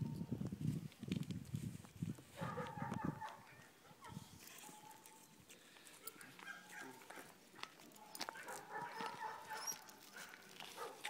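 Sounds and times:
dog whining: 0:08.8 - 0:09.9.

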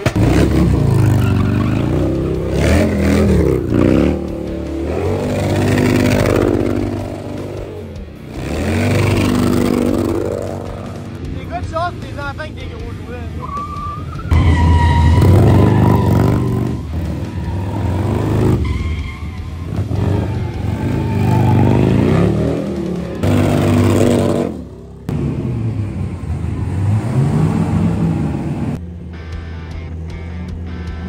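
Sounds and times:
car engines revving: 0:00.0 - 0:31.0
tyre squeal: 0:00.9 - 0:02.3, 0:13.4 - 0:22.0.

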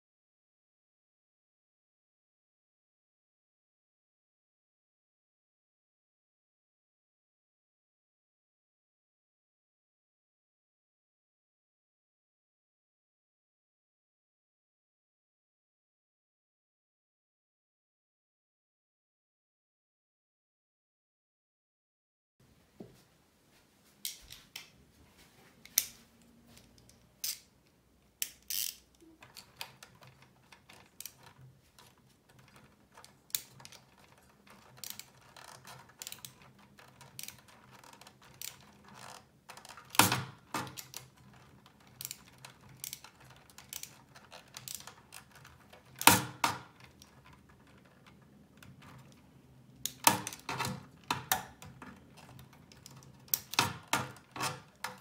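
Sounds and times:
small metal parts clicking: 0:26.6 - 0:27.5, 0:28.2 - 0:55.0.

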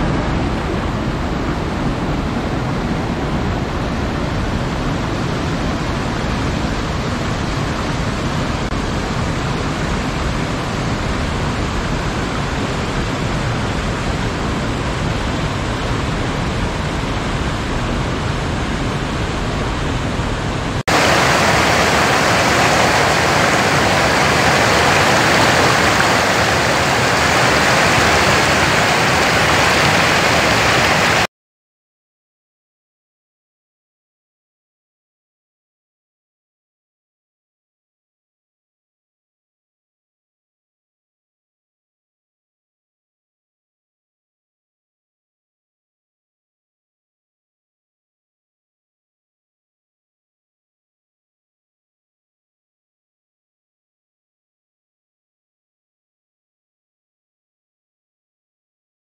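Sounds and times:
water rushing over rocks: 0:20.6 - 0:31.3
falling water rushing: 0:20.7 - 0:31.3.

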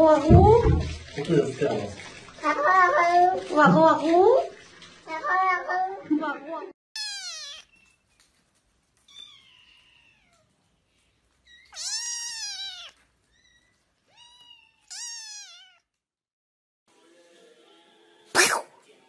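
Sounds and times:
kitten meowing: 0:07.0 - 0:07.9, 0:11.5 - 0:15.8.

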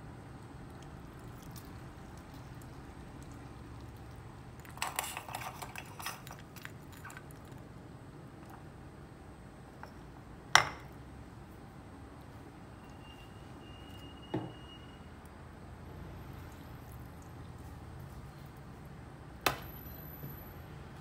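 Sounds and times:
candy crackling in ice water: 0:00.4 - 0:08.0.

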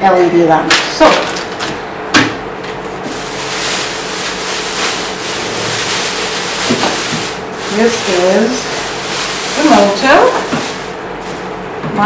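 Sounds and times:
plastic and bubble wrap crinkling: 0:02.7 - 0:11.6.

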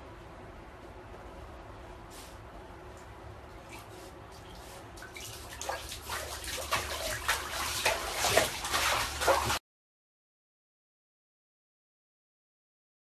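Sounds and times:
water splashing in a bathtub: 0:03.5 - 0:09.6.

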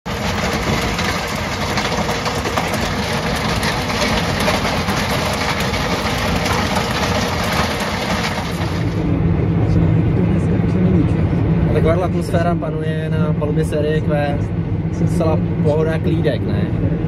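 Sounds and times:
tractor engine and rotor rumbling: 0:00.0 - 0:17.0
stones being crushed: 0:00.1 - 0:09.0
low engine hum inside cab: 0:07.1 - 0:17.0.

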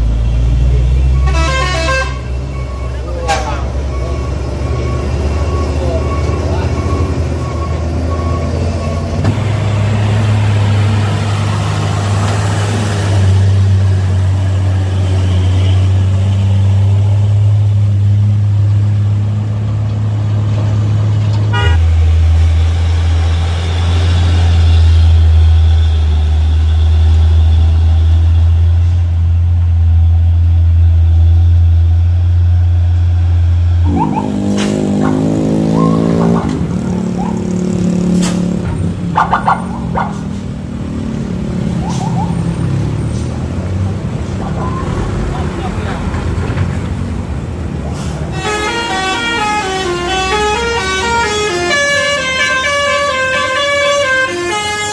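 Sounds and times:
diesel truck engines droning: 0:00.0 - 0:54.9
wavering horn tone: 0:48.3 - 0:54.9.

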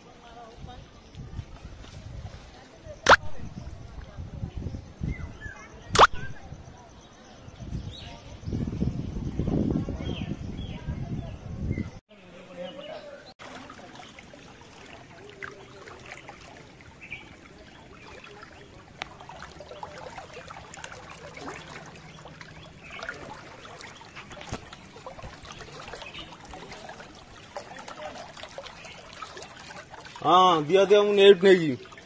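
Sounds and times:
small water splashes: 0:00.6 - 0:04.5, 0:05.8 - 0:06.6, 0:13.0 - 0:32.0
floodwater rushing against wall: 0:13.4 - 0:32.0.

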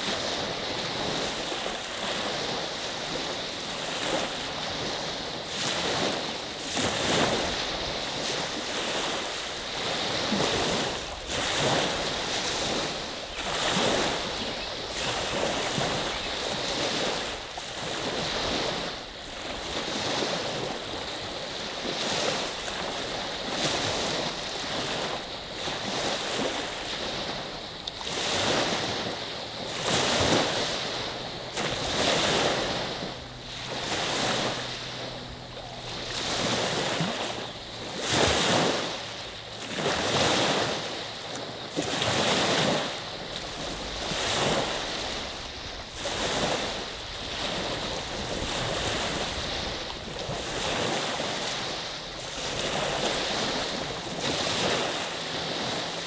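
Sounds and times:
waves washing onto beach: 0:00.0 - 0:56.0.

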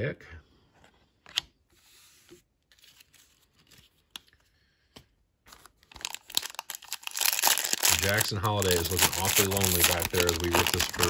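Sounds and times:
foil wrapper crinkling and tearing: 0:05.5 - 0:11.0.

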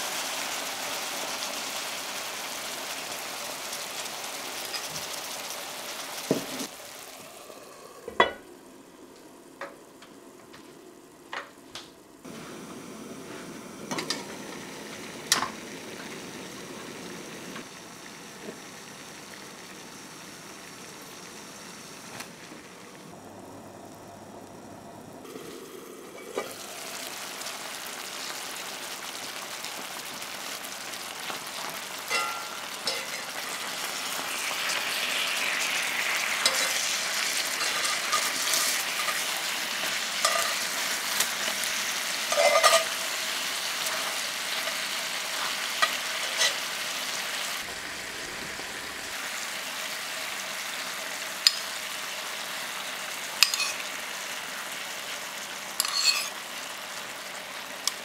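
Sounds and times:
chicken sizzling in a skillet: 0:00.0 - 0:08.7, 0:12.2 - 0:23.6, 0:25.1 - 0:58.0
tongs and spoon scraping pan: 0:36.4 - 0:36.9, 0:37.6 - 0:39.3, 0:40.2 - 0:41.3, 0:42.3 - 0:43.0, 0:45.4 - 0:46.7, 0:53.4 - 0:53.8, 0:55.8 - 0:56.4.

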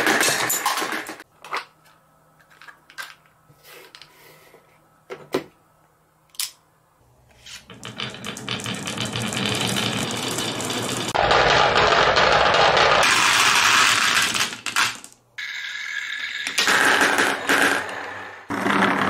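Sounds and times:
marbles rattling against plastic: 0:07.8 - 0:11.2.

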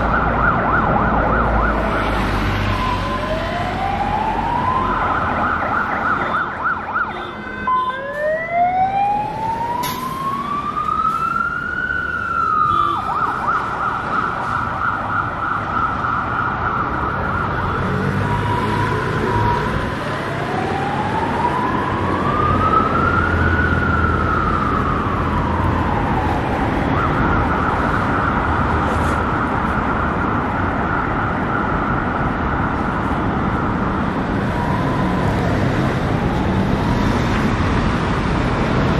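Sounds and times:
emergency vehicle siren: 0:00.0 - 0:38.9
road traffic noise: 0:00.0 - 0:38.9.

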